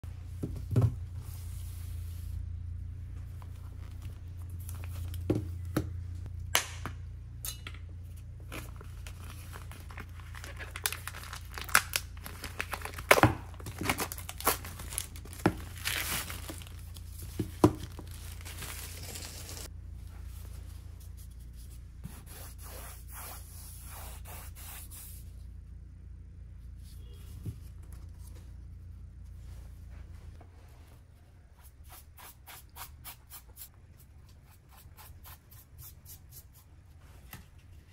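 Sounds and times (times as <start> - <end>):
steady low hum: 0.0 - 37.9
plastic wrapping crinkling: 8.5 - 19.7.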